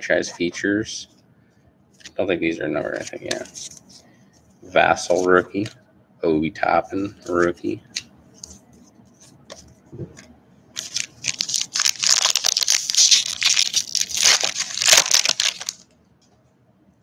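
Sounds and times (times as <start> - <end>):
foil wrapper crackling: 10.8 - 15.8.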